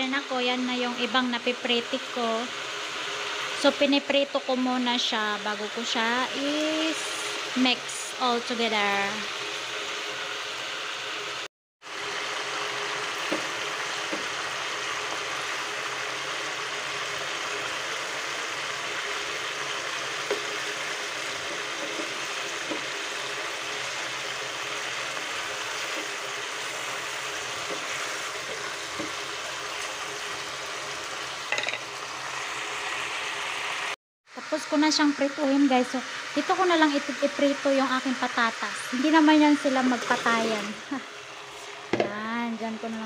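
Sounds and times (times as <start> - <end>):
chicken sizzling in a frying pan: 0.0 - 43.0
wooden spatula knocking a pan: 13.2 - 14.3, 28.6 - 29.2.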